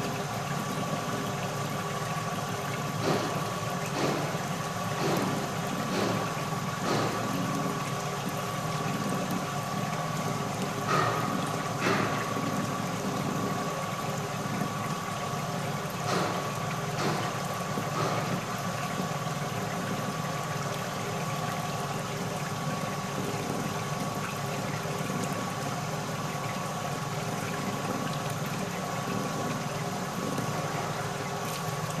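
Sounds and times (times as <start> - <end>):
liquid splashing: 0.0 - 32.0
vibrating machine hum and rattle: 0.0 - 32.0
sharp knocks: 5.0 - 7.3, 16.1 - 18.4.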